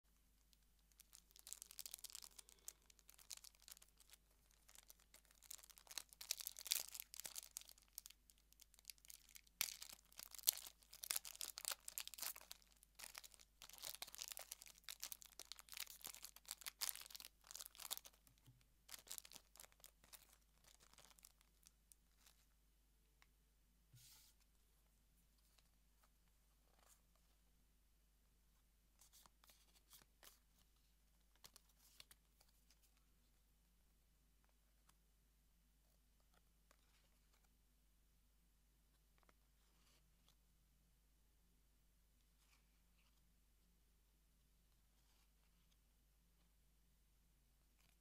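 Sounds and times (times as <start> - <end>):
foil wrapper crinkling and tearing: 0.9 - 18.2, 18.9 - 21.7.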